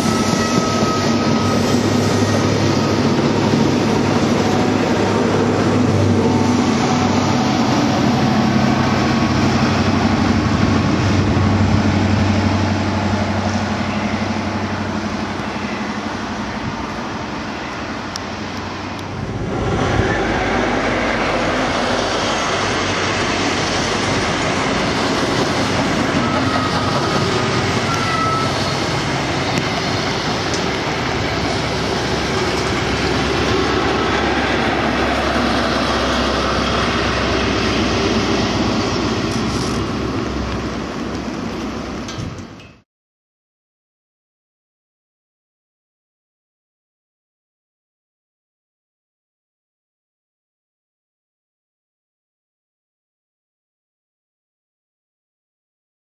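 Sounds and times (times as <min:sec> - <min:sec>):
low diesel drone: 0:00.0 - 0:42.6
train rushing past: 0:00.0 - 0:42.6
train wheels rumbling on rail: 0:00.0 - 0:42.8.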